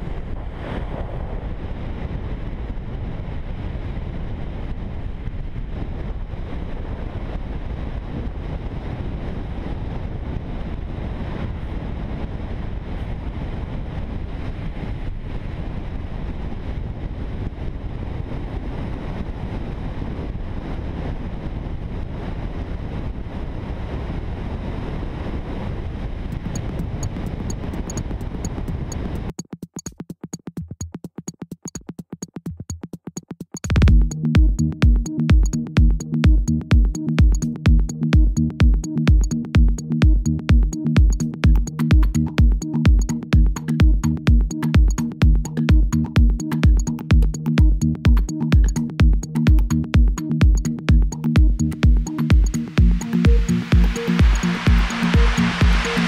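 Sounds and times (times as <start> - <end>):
wind buffeting microphone: 0.0 - 29.3.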